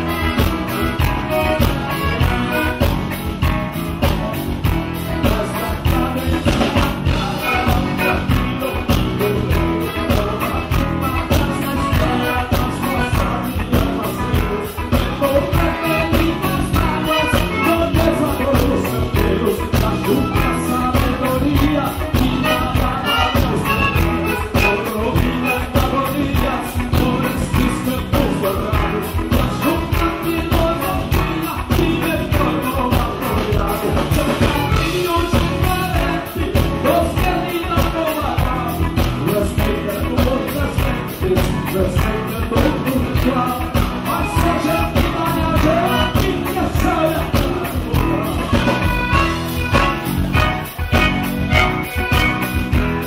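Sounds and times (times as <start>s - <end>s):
piano accordion: 0.0s - 26.2s, 47.9s - 53.0s
band with a steady beat: 0.0s - 53.0s
man singing: 0.0s - 53.0s.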